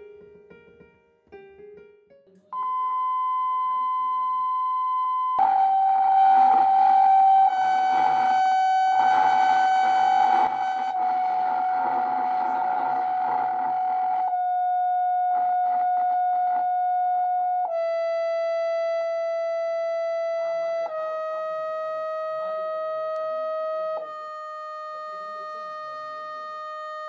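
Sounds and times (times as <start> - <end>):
buzzy test tone from loudspeaker: 2.6 - 27.0
rough buzzing noise: 5.4 - 14.5.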